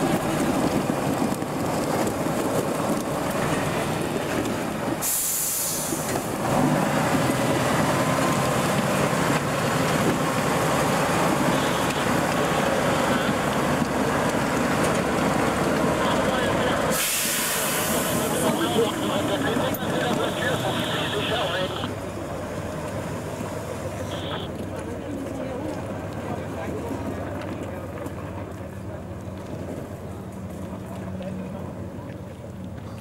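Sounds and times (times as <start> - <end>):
diesel engine running: 0.0 - 33.0
brief hiss: 5.0 - 6.2, 16.9 - 18.4.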